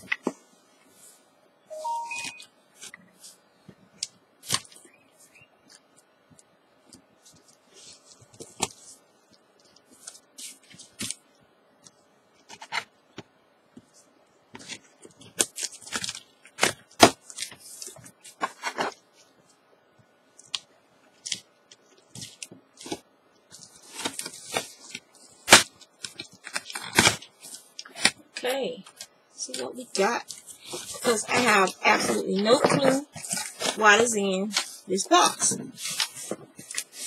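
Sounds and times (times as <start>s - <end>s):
packing tape tearing: 23.8s - 28.2s
cardboard scraping: 30.0s - 37.0s.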